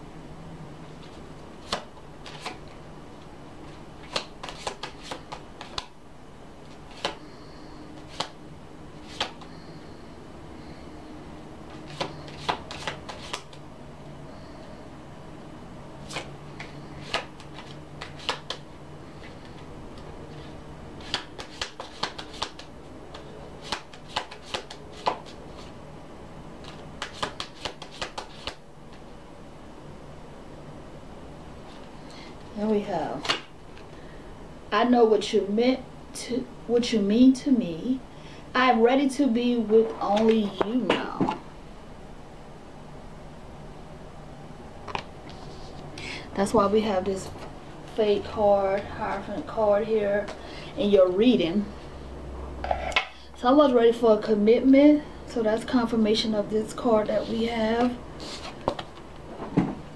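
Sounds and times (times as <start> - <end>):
cards being shuffled: 1.0 - 2.8, 3.6 - 5.9, 6.7 - 7.2, 8.0 - 8.4, 9.0 - 9.5, 11.8 - 13.6, 16.0 - 18.6, 19.2 - 25.7, 26.6 - 29.0, 33.2 - 33.9, 57.8 - 59.1
card slaps and taps: 9.1 - 9.4, 16.1 - 18.6, 21.0 - 25.3, 26.7 - 28.6.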